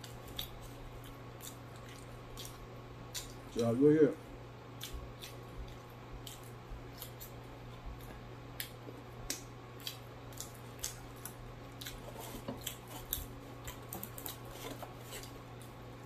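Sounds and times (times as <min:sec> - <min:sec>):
chewing mouth sounds: 0:00.0 - 0:03.6, 0:04.7 - 0:14.4
low steady hum: 0:00.0 - 0:16.0
lip smacks: 0:08.0 - 0:12.0.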